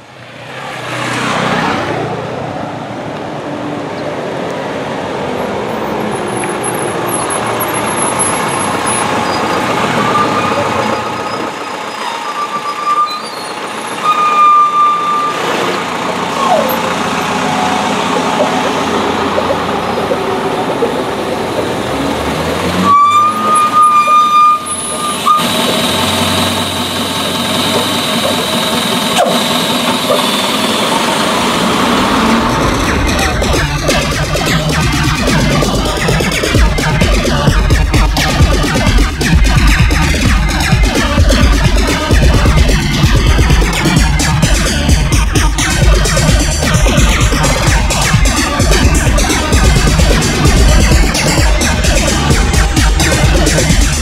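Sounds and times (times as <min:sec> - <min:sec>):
heavy road traffic: 0:00.0 - 0:54.0
car horn blasts: 0:07.9 - 0:15.8, 0:22.8 - 0:27.2.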